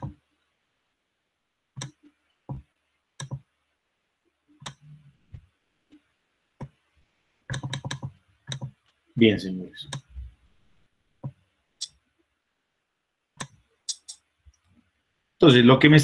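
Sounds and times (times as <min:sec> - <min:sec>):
computer mouse clicking: 0:01.8 - 0:02.6, 0:03.2 - 0:03.5, 0:07.5 - 0:09.0, 0:13.4 - 0:14.7.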